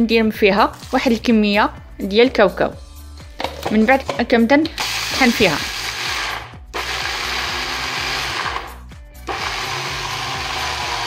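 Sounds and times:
food chopper grinding: 4.8 - 11.0.

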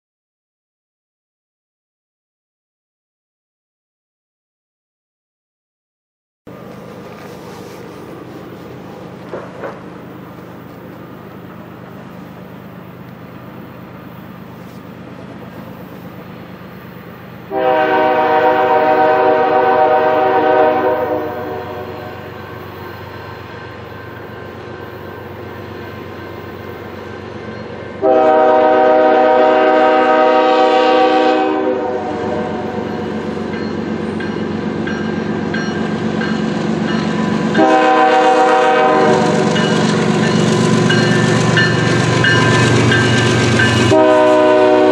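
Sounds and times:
locomotive rumble: 6.5 - 44.9
locomotive horn blasts: 17.5 - 22.4, 28.0 - 33.2, 37.5 - 39.8, 43.6 - 44.9.

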